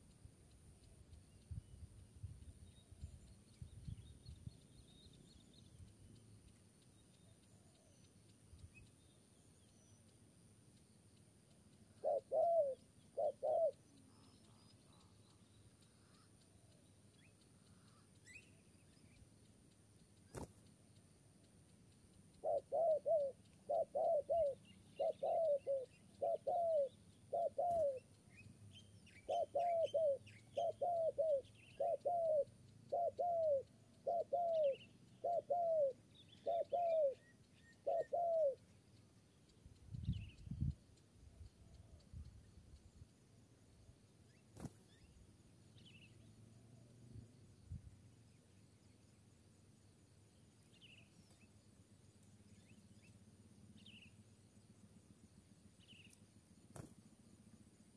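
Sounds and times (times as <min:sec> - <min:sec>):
dove cooing: 0:12.0 - 0:13.8, 0:22.4 - 0:28.0, 0:29.2 - 0:38.6.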